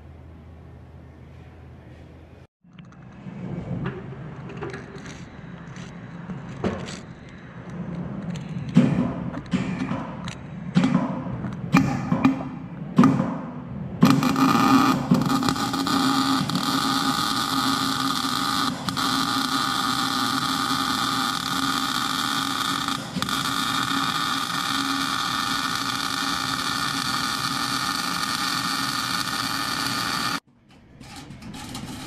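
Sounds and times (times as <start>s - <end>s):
welding arc crackling hiss: 14.0s - 30.5s.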